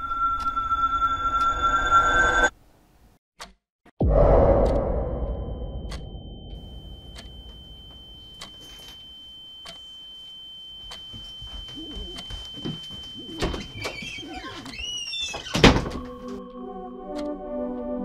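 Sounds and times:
high ringing tone: 0:00.0 - 0:02.5, 0:04.1 - 0:14.5
loud hit: 0:04.0 - 0:08.2
low wavering noise: 0:04.0 - 0:10.2.

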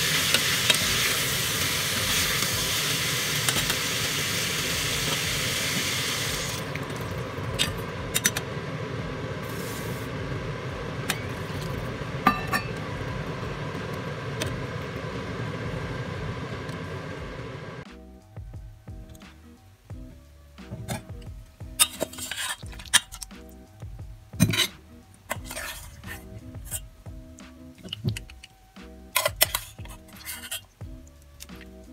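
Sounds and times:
liquid simmering: 0:00.0 - 0:17.8
meat and vegetables sizzling in pot: 0:00.0 - 0:18.0, 0:18.9 - 0:31.9
metal spoon clinking against pot: 0:29.2 - 0:30.6.

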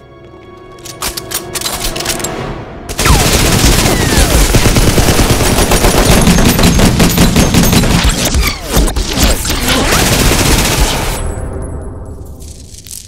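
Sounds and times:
rapid gunfire: 0:02.9 - 0:11.2.

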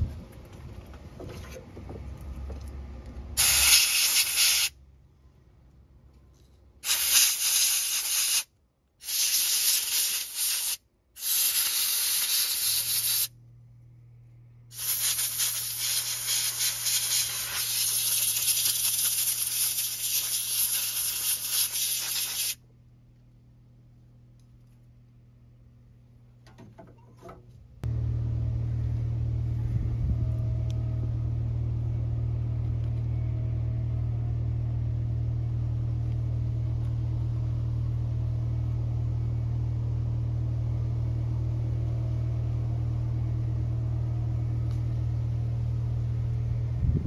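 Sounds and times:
compressed air blow gun hissing: 0:03.4 - 0:04.7, 0:06.8 - 0:13.3, 0:14.7 - 0:22.6.

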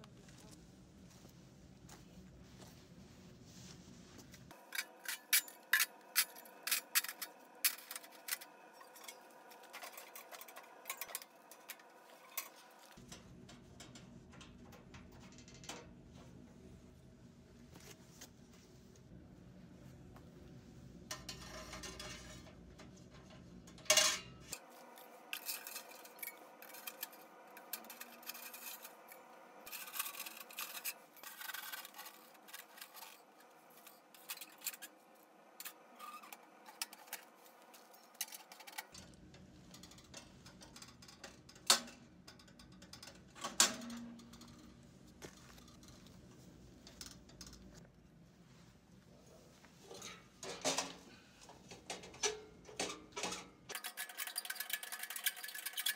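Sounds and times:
metal stove parts clanking: 0:21.1 - 0:34.9, 0:35.6 - 0:44.6, 0:49.9 - 0:55.9.

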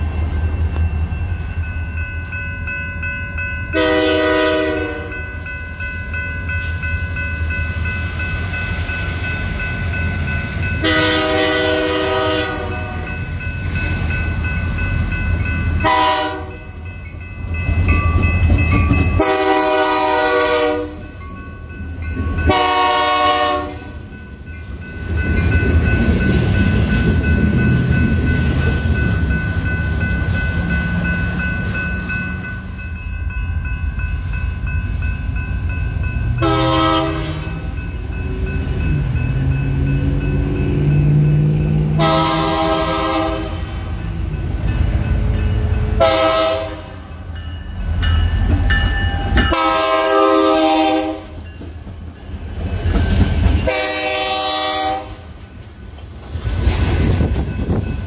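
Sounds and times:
locomotive engines rumbling: 0:00.0 - 0:58.0
electronic crossing bell ringing: 0:00.5 - 0:19.6, 0:24.0 - 0:42.6, 0:47.2 - 0:50.2
locomotive horn blasts: 0:03.8 - 0:05.2, 0:10.8 - 0:13.1, 0:15.8 - 0:16.7, 0:19.2 - 0:21.0, 0:22.5 - 0:24.0, 0:36.4 - 0:37.6, 0:42.0 - 0:43.8, 0:46.0 - 0:47.0, 0:49.4 - 0:51.4, 0:53.6 - 0:55.3.

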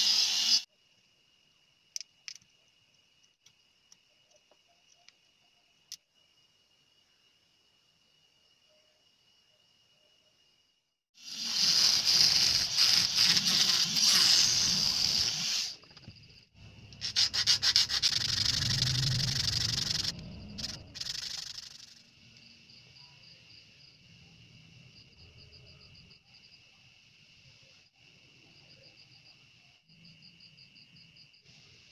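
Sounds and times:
faint high insect chirping: 0:00.1 - 0:31.9
sandpaper rubbing on plastic: 0:11.2 - 0:15.8, 0:17.0 - 0:21.8.

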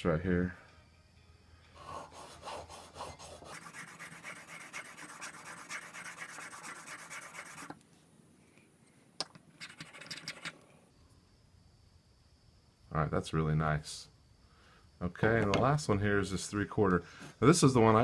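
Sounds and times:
chisel rubbing on whetstone: 0:01.8 - 0:07.8.

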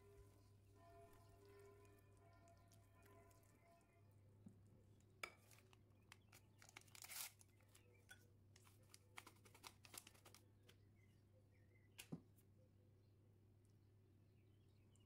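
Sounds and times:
powder crinkling in metal sieve: 0:05.3 - 0:07.8, 0:08.6 - 0:10.4
paper sachet tearing: 0:06.5 - 0:07.5.

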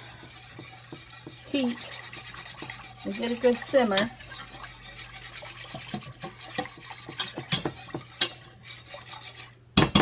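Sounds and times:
wire whisk scraping saucepan: 0:00.0 - 0:10.0.

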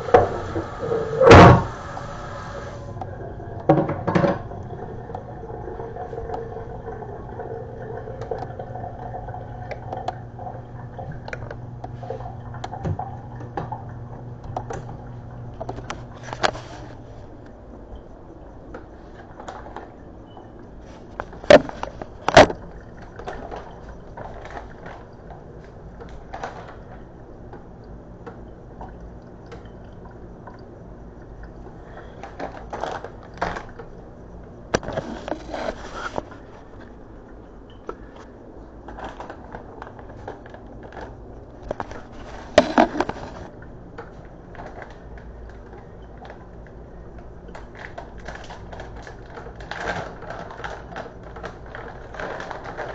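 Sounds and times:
packaging rustling: 0:38.9 - 0:43.5
utensils clattering: 0:41.7 - 0:43.5.

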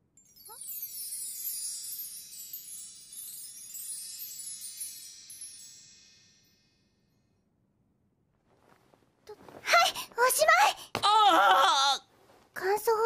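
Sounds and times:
shimmering bell chime cascade: 0:00.2 - 0:07.1.

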